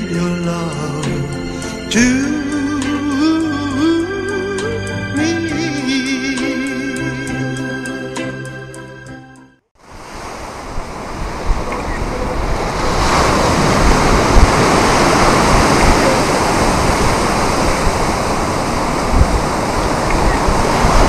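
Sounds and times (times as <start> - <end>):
sea surf rushing: 9.8 - 21.0
wind buffeting microphone: 9.8 - 21.0.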